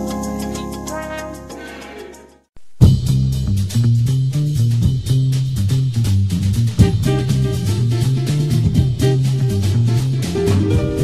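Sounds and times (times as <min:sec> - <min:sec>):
steady drum beat: 0:00.0 - 0:11.0
moving bass line: 0:02.8 - 0:11.0.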